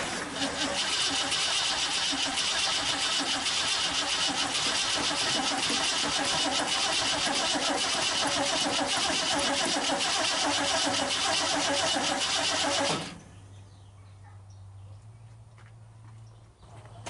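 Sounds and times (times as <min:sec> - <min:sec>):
engine cranking by starter: 0:00.0 - 0:13.4.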